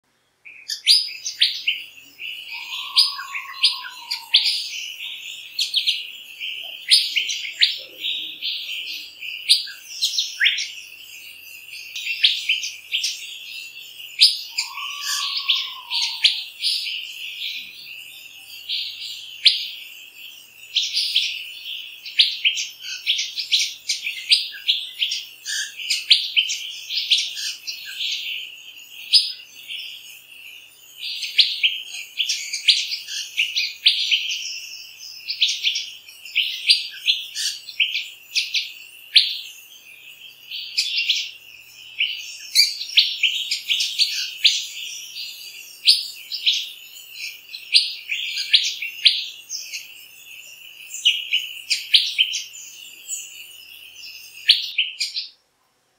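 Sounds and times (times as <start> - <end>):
birds chirping and whistling: 0.4 - 55.3.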